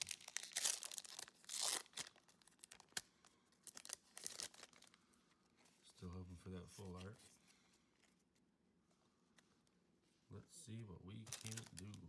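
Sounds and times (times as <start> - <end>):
foil wrapper tearing: 0.0 - 3.0, 11.3 - 12.0.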